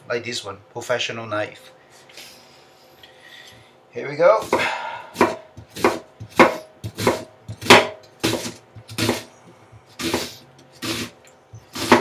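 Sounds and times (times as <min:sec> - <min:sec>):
knife slicing onion on board: 0:04.4 - 0:12.0.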